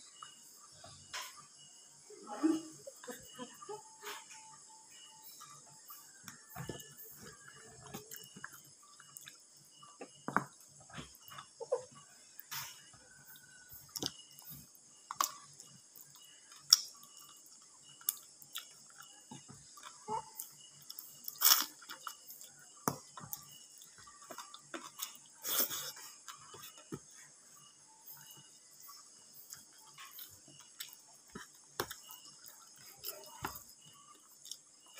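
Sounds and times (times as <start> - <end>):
chewing and mouth clicks: 6.3 - 9.5, 13.2 - 27.0, 29.4 - 34.9.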